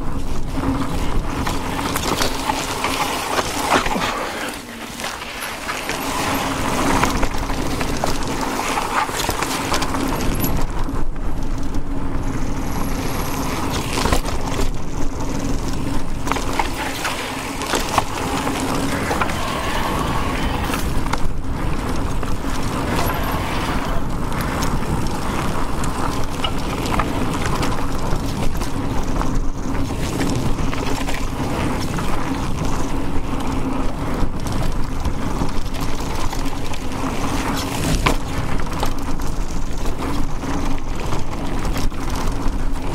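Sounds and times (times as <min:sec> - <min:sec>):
low hum: 0:00.0 - 0:34.4
bike rattling and clicking: 0:00.0 - 0:42.9
bike tyres rolling: 0:00.0 - 0:42.9.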